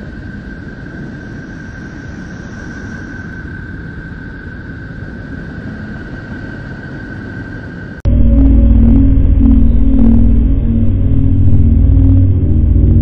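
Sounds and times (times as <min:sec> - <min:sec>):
constant high tone: 0:06.6 - 0:13.0
fainter higher tone: 0:08.0 - 0:13.0
low dense noise: 0:08.1 - 0:13.0.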